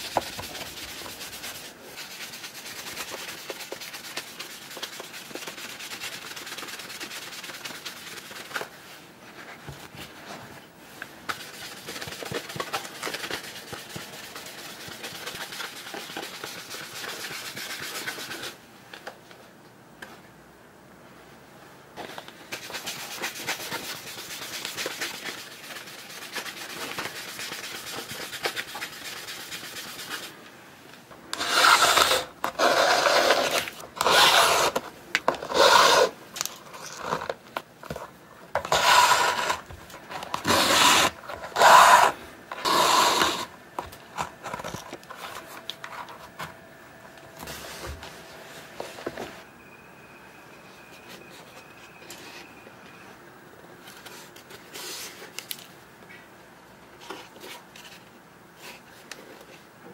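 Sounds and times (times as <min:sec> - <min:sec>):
shoe rubbed with stocking: 0:31.4 - 0:34.8, 0:35.5 - 0:36.2.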